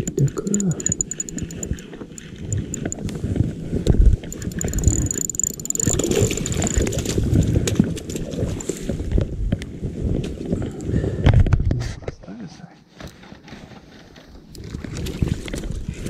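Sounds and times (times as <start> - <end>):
fast high-pitched ticking: 0.0 - 3.1, 4.3 - 7.5
wind noise: 0.0 - 12.1.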